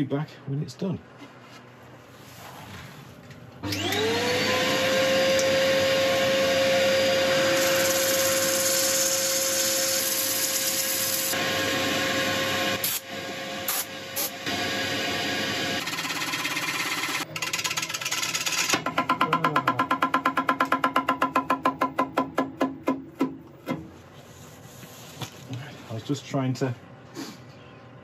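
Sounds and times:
vacuum motor whining: 3.6s - 9.6s, 11.2s - 15.8s.

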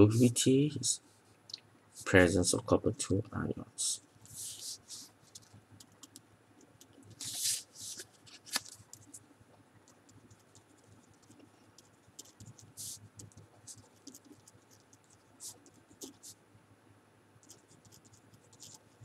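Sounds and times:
pen scratching on paper: 9.9s - 16.4s, 17.4s - 19.0s.

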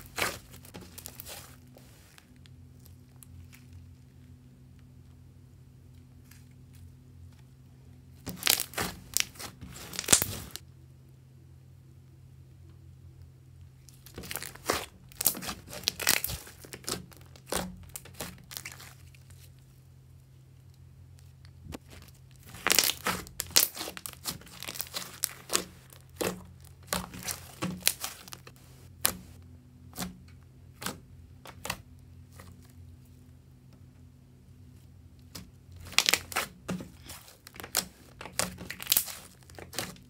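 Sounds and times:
slime crackling and popping: 0.0s - 2.5s, 8.2s - 10.6s, 13.9s - 19.4s, 21.2s - 30.1s, 35.2s - 40.0s.

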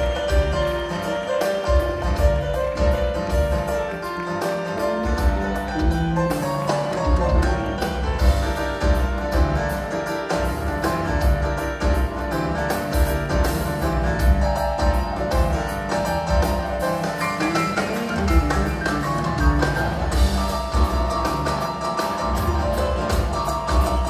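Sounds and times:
live rock band playing: 0.0s - 24.0s
piano: 0.0s - 24.0s.

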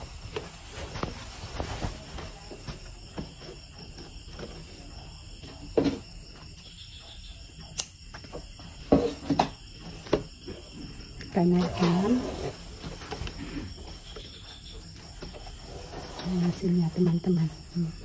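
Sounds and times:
cloth rustling: 0.0s - 4.7s.

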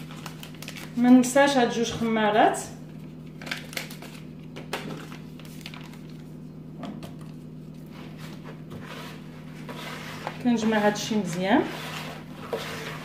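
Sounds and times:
hand mixing dough in plastic bowl: 5.1s - 13.0s.

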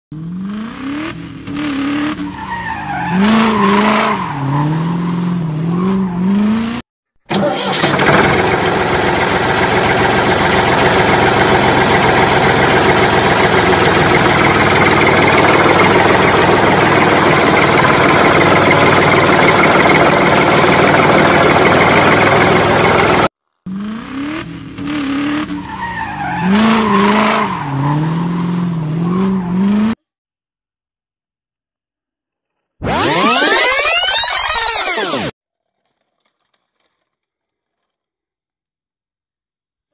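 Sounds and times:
car engine revving: 0.1s - 30.0s, 32.8s - 35.4s
loud steady engine drone: 7.6s - 25.3s.

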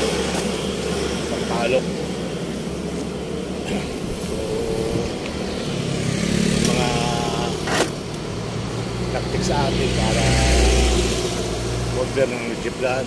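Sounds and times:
motorcycle engine: 0.0s - 13.0s
vehicle engines running: 0.0s - 13.0s.

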